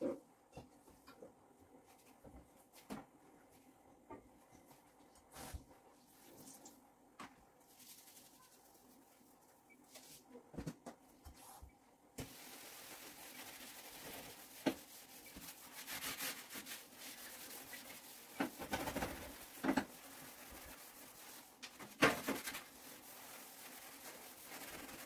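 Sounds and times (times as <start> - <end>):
sponge scrubbing enamel: 12.3 - 25.0.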